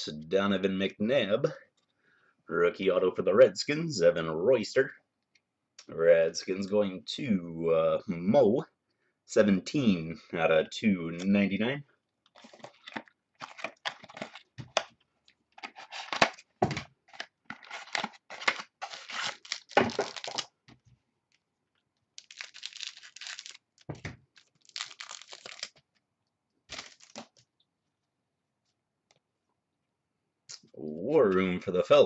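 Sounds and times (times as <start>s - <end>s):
card pack wrappers tearing: 12.3s - 14.5s, 15.6s - 16.4s, 17.0s - 20.5s, 22.2s - 25.9s, 26.7s - 27.4s.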